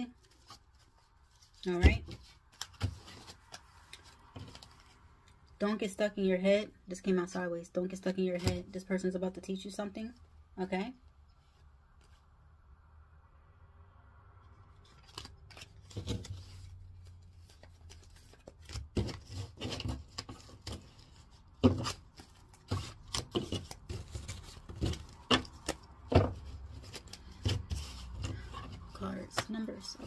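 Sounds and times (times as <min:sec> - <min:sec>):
cards being shuffled: 0:00.1 - 0:05.4, 0:14.8 - 0:30.0.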